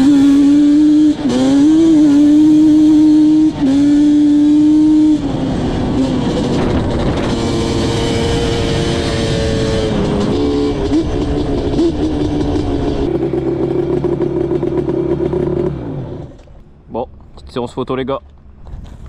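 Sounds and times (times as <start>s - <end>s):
two-stroke quad engine running: 0.0s - 16.5s.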